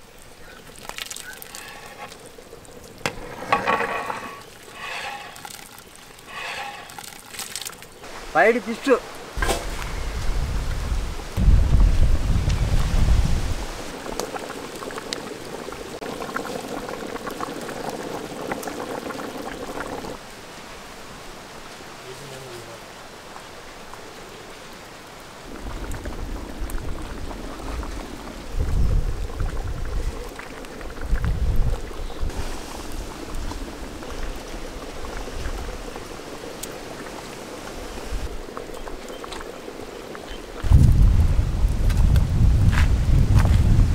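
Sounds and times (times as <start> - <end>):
gravy bubbling in a pot: 0.0 - 8.1, 13.8 - 20.2, 25.3 - 43.9.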